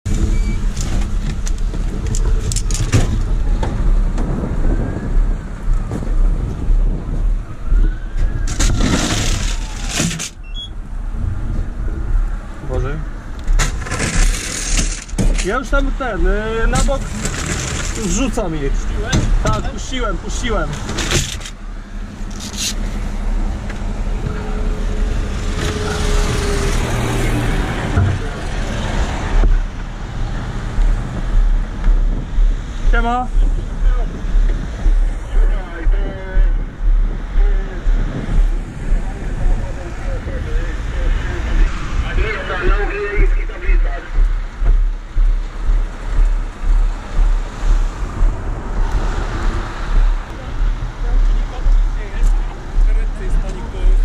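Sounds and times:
low vehicle engine rumble: 0.0s - 54.0s
knocks and rustling: 0.1s - 4.7s, 13.4s - 15.8s, 16.7s - 18.2s
loud rush of noise: 0.1s - 54.0s
plastic cones rustling and scraping: 8.5s - 10.4s, 13.6s - 15.6s, 16.9s - 18.2s
steady hum: 29.3s - 54.0s.

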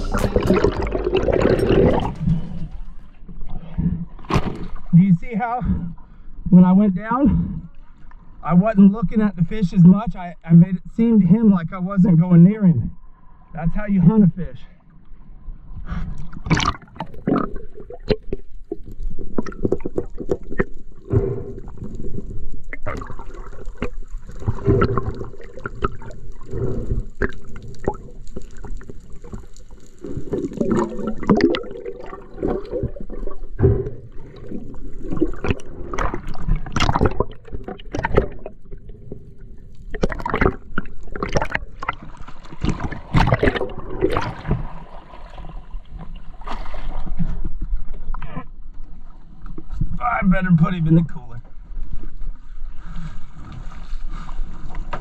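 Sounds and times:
water sloshing and splashing: 0.0s - 5.0s, 15.6s - 50.0s, 51.5s - 55.0s.

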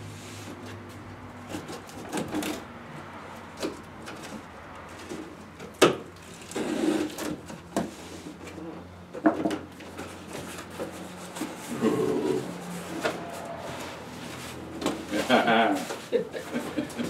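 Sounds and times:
cardboard rustling and scraping: 9.6s - 17.0s.

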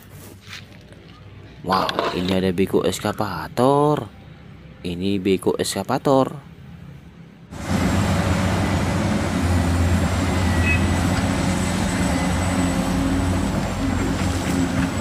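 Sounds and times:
excavator diesel engine running: 7.5s - 15.0s.

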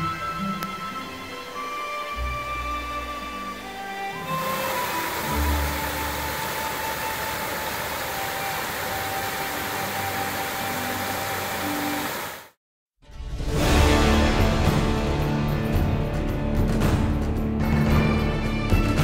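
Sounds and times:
held music notes: 0.0s - 12.3s
water pouring over rocks: 4.3s - 12.5s.

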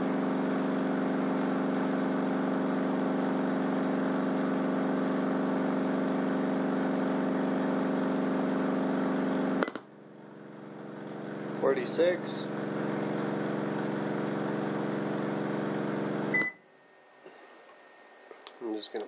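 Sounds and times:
subwoofer low test tone hum: 9.4s - 16.7s.

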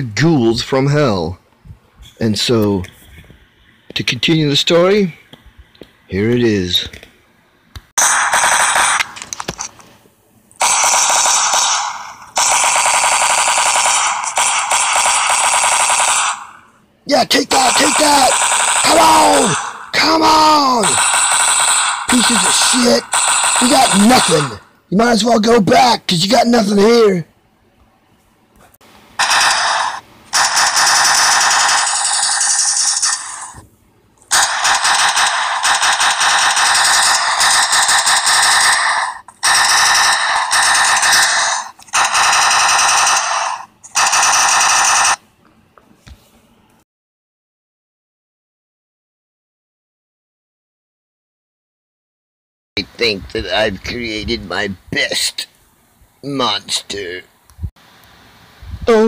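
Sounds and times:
machine-gun fire bursts: 8.0s - 9.2s, 10.6s - 16.6s, 17.5s - 19.9s, 20.8s - 24.6s, 29.2s - 33.6s, 34.3s - 45.2s.

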